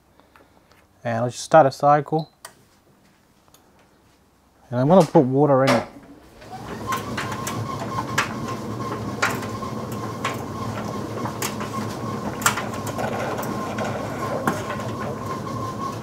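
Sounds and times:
dryer humming with whine: 3.8 - 16.0.

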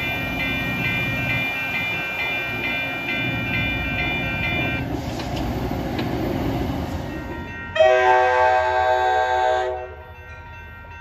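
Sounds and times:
train rumbling by: 0.0 - 11.0
locomotive air horn blast: 7.8 - 9.8.

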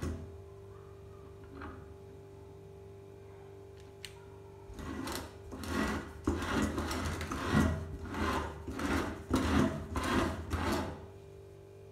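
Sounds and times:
hand-cranked meat grinder grinding: 4.7 - 11.0.

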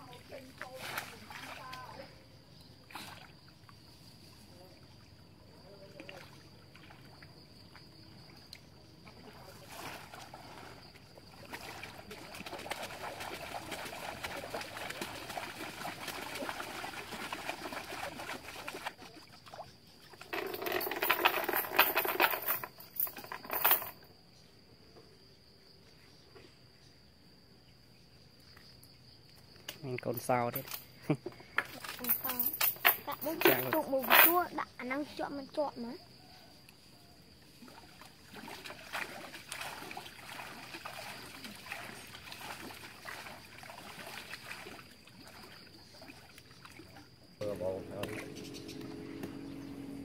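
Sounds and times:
water splashing and sloshing: 0.0 - 23.8, 37.2 - 50.0
insects droning: 0.0 - 50.0.

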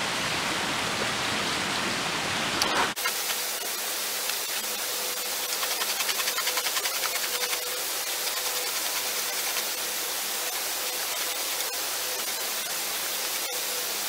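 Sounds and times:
steady rushing hiss: 0.0 - 14.0
hide rubbing by hand: 4.2 - 10.4.

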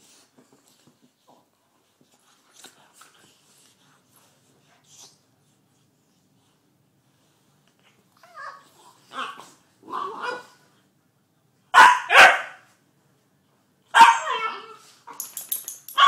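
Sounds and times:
puppy barking: 11.7 - 12.6, 13.9 - 14.5.

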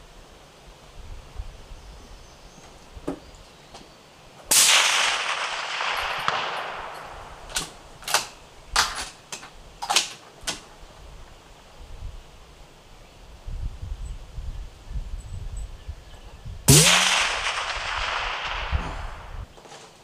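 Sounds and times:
suppressed rifle shot with echo: 4.5 - 7.8, 16.7 - 19.4.

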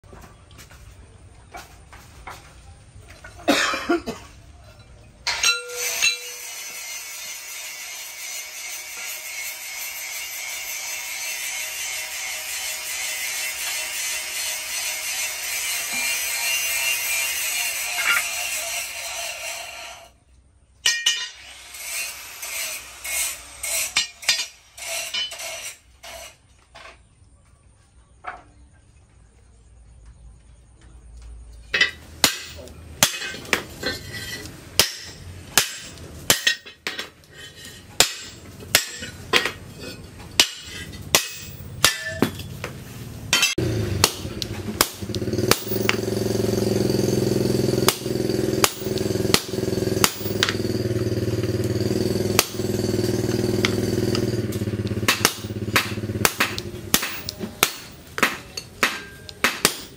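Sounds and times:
hammer striking steel: 5.2 - 7.0, 20.8 - 25.8, 31.8 - 37.2, 38.0 - 39.6, 40.3 - 42.5, 43.3 - 59.9
mechanical drone: 43.6 - 57.3.

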